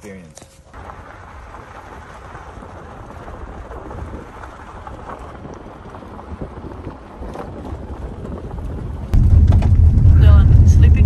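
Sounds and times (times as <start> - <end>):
tyres crackling on gravel: 0.5 - 11.0
car interior rumble: 0.8 - 11.0.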